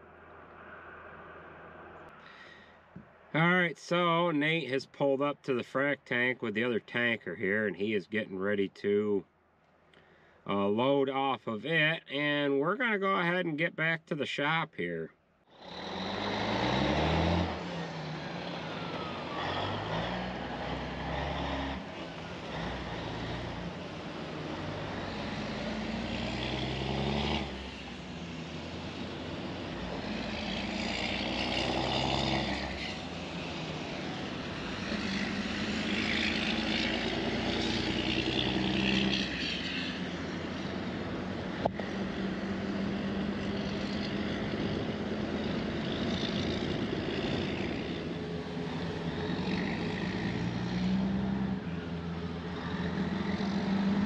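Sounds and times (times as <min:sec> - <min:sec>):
road noise: 0:00.0 - 0:54.0
vehicle engine accelerating: 0:15.5 - 0:54.0.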